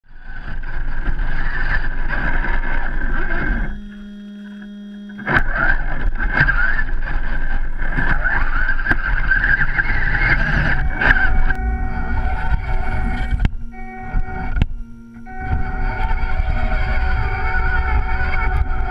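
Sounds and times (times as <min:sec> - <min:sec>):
electric motor and gear whine: 0:00.1 - 0:18.9
faint steady hum: 0:00.1 - 0:18.9.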